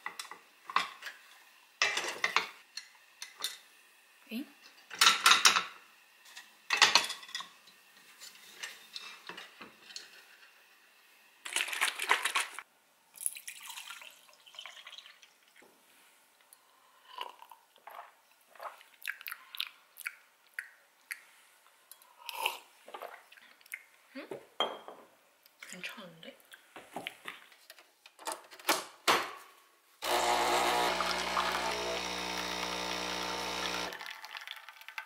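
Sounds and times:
liquid pouring into plastic cup: 13.2s - 15.6s, 30.1s - 35.0s.

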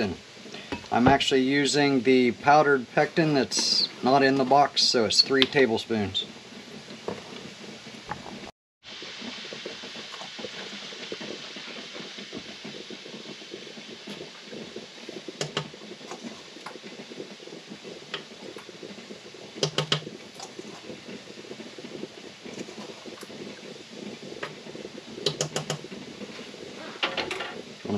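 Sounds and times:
jam hissing and crackling: 0.0s - 27.9s
whisk clicking against pot: 15.0s - 17.2s, 18.1s - 26.5s.

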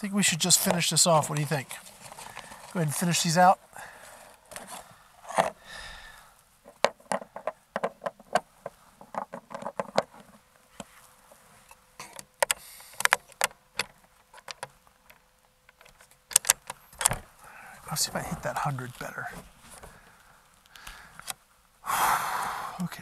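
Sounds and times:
airgun handling clicks and clatter: 4.2s - 5.6s, 6.6s - 10.4s, 11.6s - 17.3s.

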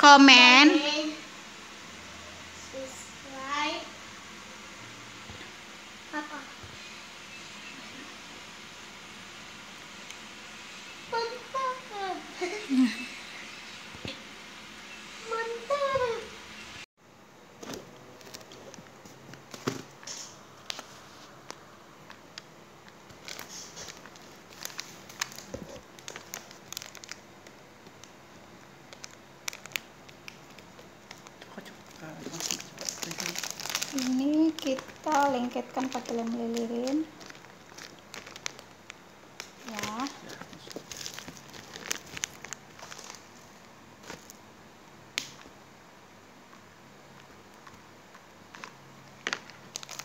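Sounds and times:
paper crinkling: 17.6s - 28.1s, 28.9s - 44.4s, 47.5s - 50.0s
plastic packets rustling: 17.6s - 44.4s, 47.2s - 50.0s.

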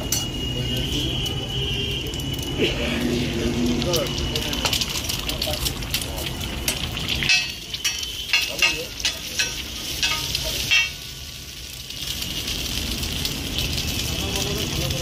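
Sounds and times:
metal spatula clanking and scraping: 0.0s - 0.4s, 7.2s - 11.2s
egg sizzling on griddle: 0.0s - 15.0s.

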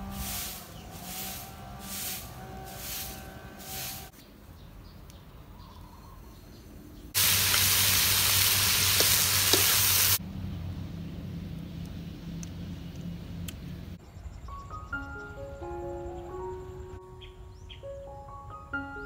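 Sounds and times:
broom brushing ground: 0.0s - 4.3s, 7.2s - 10.2s
food sizzling in hot pan: 7.2s - 10.2s.

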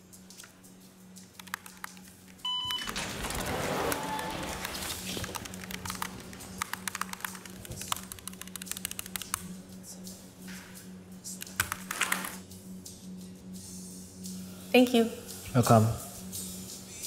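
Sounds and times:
steady low hum: 0.0s - 17.0s
keyboard typing: 1.3s - 9.5s, 11.4s - 12.4s.

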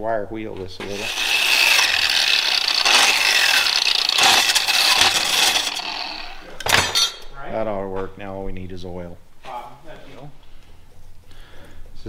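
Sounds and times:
angle grinder wire wheel on metal: 0.8s - 7.2s.

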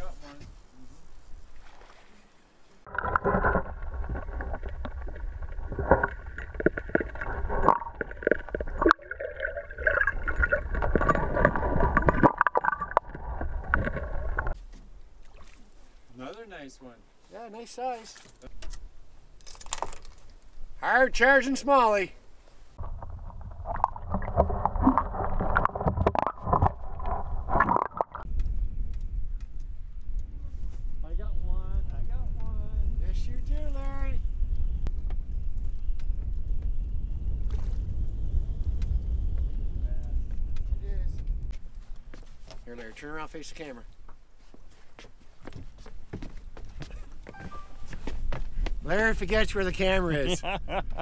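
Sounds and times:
water gurgling and sloshing: 1.2s - 15.9s, 22.8s - 28.3s
low rumble: 2.9s - 14.6s, 22.8s - 41.5s.

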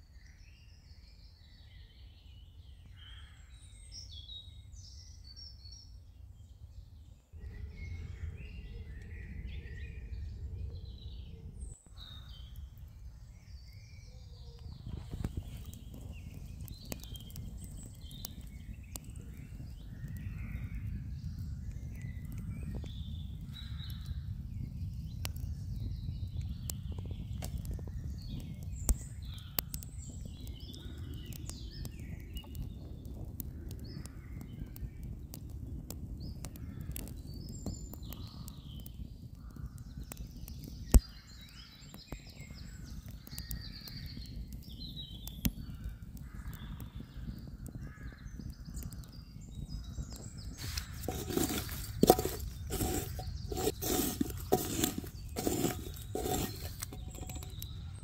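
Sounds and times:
crackles and pops of grilling: 11.8s - 58.0s
birds calling: 49.7s - 58.0s.

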